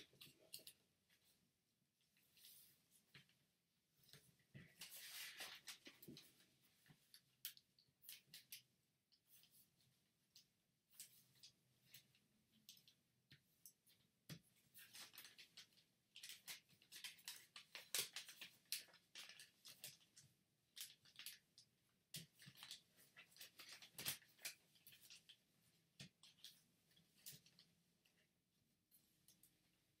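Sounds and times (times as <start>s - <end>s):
paper crinkling as folded: 4.7s - 6.3s, 14.8s - 21.6s, 22.2s - 25.3s.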